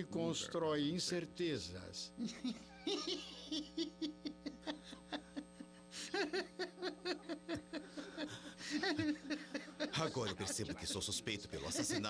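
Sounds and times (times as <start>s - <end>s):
man chuckling: 2.2s - 11.8s.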